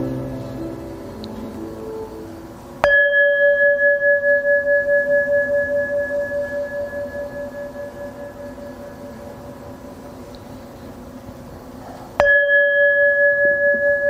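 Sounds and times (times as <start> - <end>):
piano tune: 0.0 - 4.6
bowl bell ringing: 0.0 - 10.2, 12.2 - 14.0.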